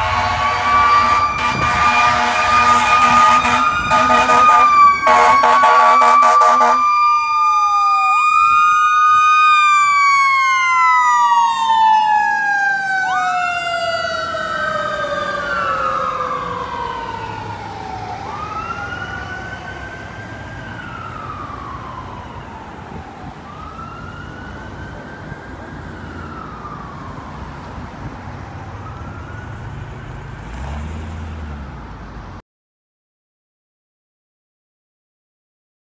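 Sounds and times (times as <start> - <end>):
horn blast: 0.0 - 6.8
fire truck sirens wailing: 0.0 - 31.8.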